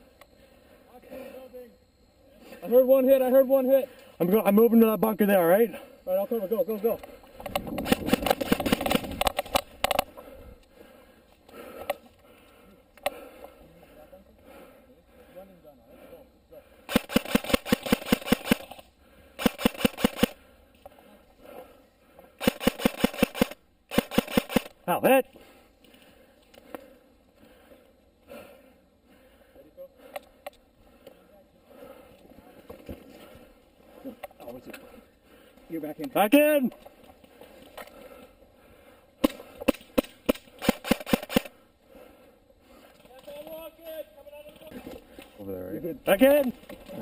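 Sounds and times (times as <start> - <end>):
airsoft rifle rapid firing: 7.8 - 9.7, 16.9 - 18.8, 19.4 - 20.4, 22.4 - 24.8, 39.2 - 41.6.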